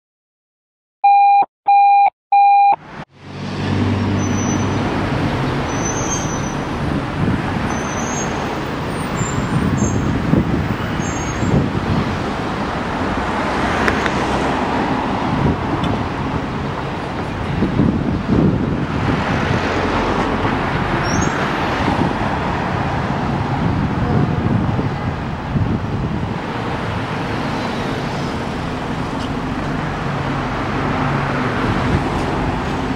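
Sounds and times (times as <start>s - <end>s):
short electronic beeps: 1.0s - 2.8s
street traffic noise: 1.7s - 32.9s
cars passing by: 2.4s - 32.9s.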